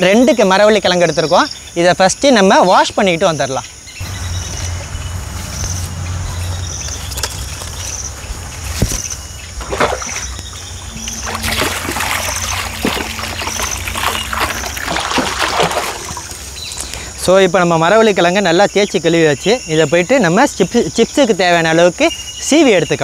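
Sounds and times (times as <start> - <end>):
insect chirping: 0.0 - 23.0
water splashing into bowl: 9.6 - 16.6.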